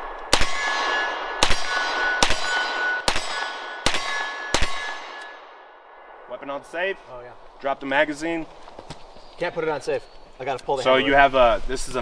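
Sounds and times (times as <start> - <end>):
rifle shots: 0.0 - 6.2
metallic ringing: 0.5 - 5.6.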